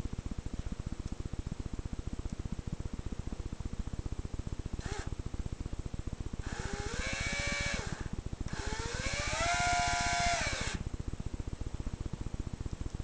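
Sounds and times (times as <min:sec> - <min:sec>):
cordless drill driving screws: 0:04.8 - 0:05.1, 0:06.4 - 0:10.8.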